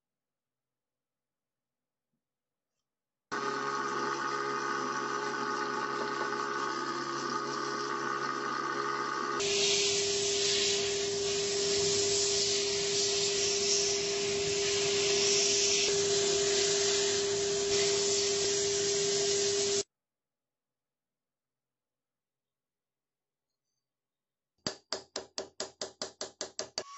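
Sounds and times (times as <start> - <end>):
parts washer humming: 3.3 - 19.8
abrasive blast gun hissing: 9.4 - 19.8.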